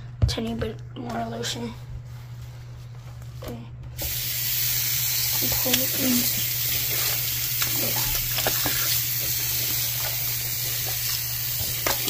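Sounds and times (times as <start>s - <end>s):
tap water running into sink: 4.0s - 12.0s.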